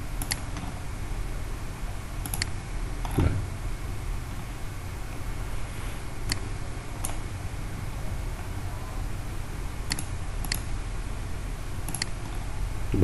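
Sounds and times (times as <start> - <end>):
low room hum: 0.0 - 13.0
computer mouse clicking: 0.2 - 0.6, 2.2 - 2.5, 6.2 - 6.4, 9.9 - 10.7, 11.8 - 12.4.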